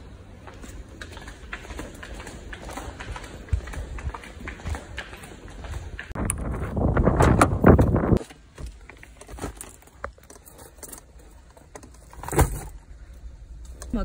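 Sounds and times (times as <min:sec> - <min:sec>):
car keys jangling: 0:09.6 - 0:12.7.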